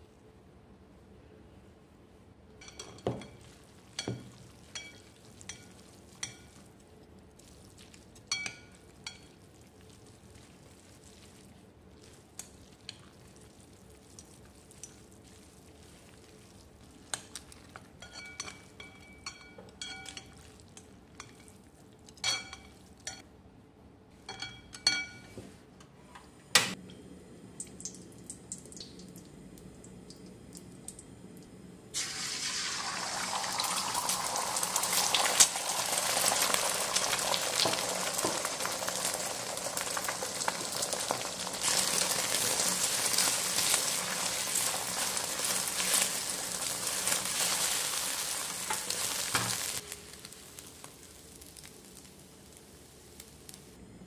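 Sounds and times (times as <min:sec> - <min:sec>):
faint sizzle: 0:01.1 - 0:23.3, 0:26.7 - 0:54.0
tap water running: 0:32.0 - 0:49.6.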